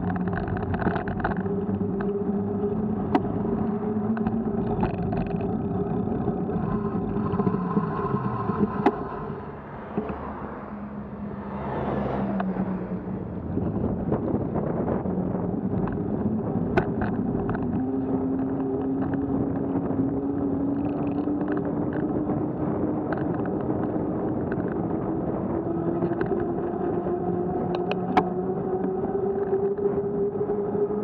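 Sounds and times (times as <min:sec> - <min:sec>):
road noise: 0:00.0 - 0:31.0
vehicle engine accelerating: 0:00.0 - 0:31.0
wind on microphone: 0:00.0 - 0:31.0.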